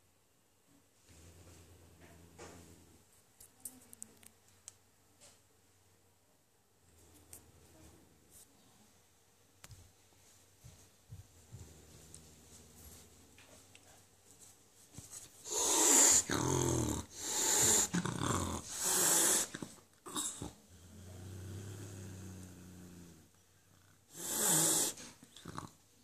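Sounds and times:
cat growling: 0:01.0 - 0:03.0, 0:15.4 - 0:25.8
cat hissing: 0:15.4 - 0:20.6, 0:24.1 - 0:25.7.

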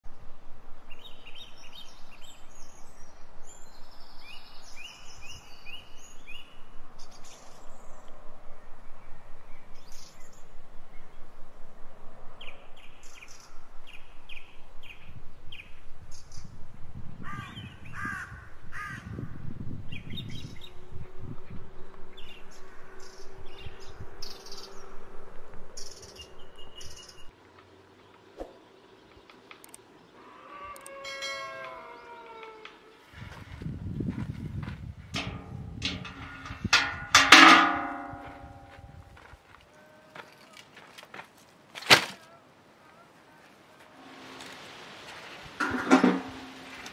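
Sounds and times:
harsh low bird calls: 0:17.2 - 0:27.3
birds chirping: 0:25.7 - 0:33.0.

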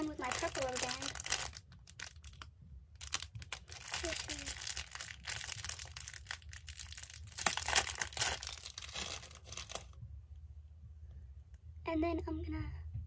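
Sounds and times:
plastic bag crinkling: 0:00.0 - 0:10.0
rubber bands rustling: 0:00.0 - 0:10.0.

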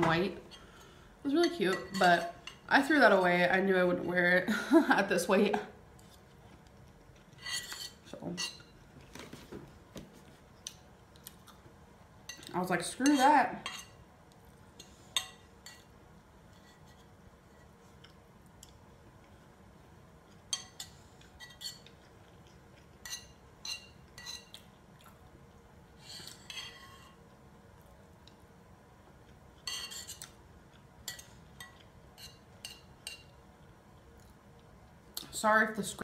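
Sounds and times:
metal utensil scraping ceramic bowl: 0:07.4 - 0:08.7.

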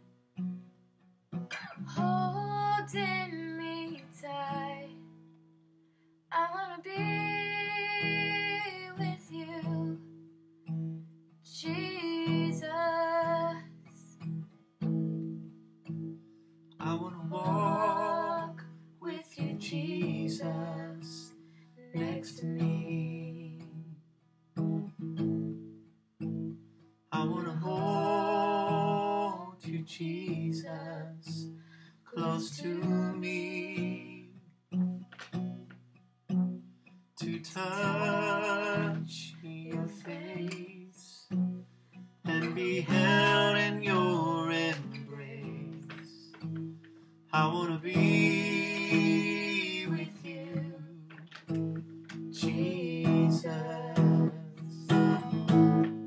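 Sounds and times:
girl singing: 0:01.8 - 0:05.1, 0:06.3 - 0:10.1, 0:11.5 - 0:14.1, 0:17.2 - 0:23.8, 0:32.1 - 0:34.2, 0:37.2 - 0:41.2, 0:47.9 - 0:51.2, 0:52.3 - 0:55.8
acoustic guitar strumming: 0:06.9 - 0:24.0, 0:24.6 - 0:56.0.

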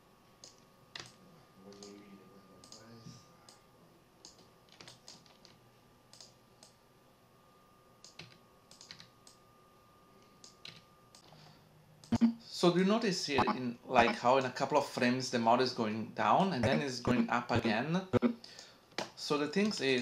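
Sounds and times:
keyboard and mouse clicks: 0:00.4 - 0:02.0, 0:02.6 - 0:02.9, 0:04.2 - 0:06.8, 0:08.0 - 0:09.4.

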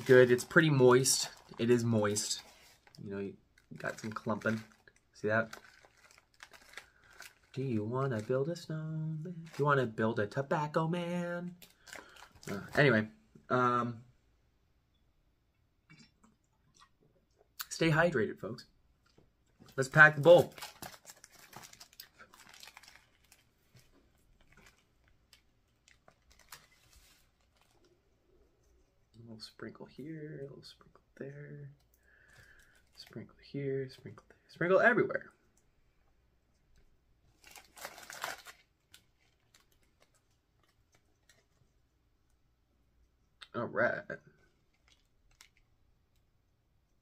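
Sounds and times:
tobacco bag crinkling: 0:00.0 - 0:10.0, 0:11.4 - 0:13.0, 0:19.7 - 0:28.0, 0:37.3 - 0:41.6, 0:44.6 - 0:45.8.

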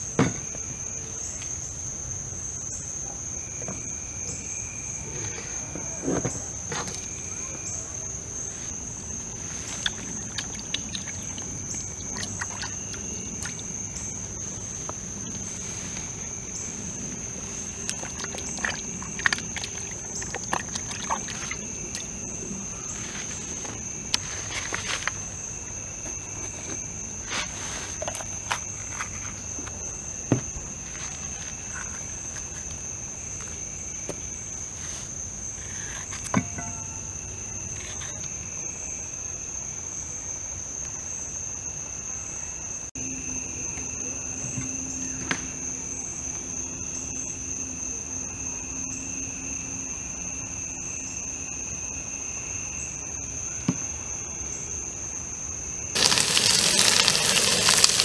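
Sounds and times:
night insects trilling: 0:00.0 - 0:58.0
pepper rinsed in bucket of water: 0:09.8 - 0:13.7, 0:17.8 - 0:22.1, 0:56.0 - 0:58.0.

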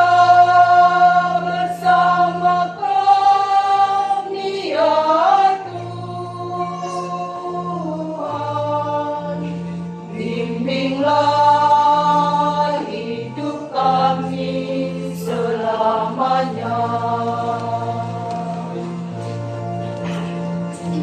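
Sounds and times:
church choir singing: 0:00.0 - 0:21.0.

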